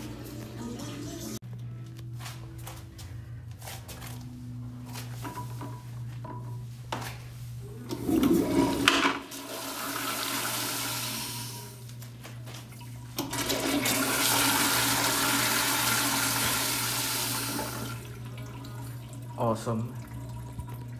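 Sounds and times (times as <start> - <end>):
toilet flushing: 7.7 - 11.8, 12.7 - 20.9.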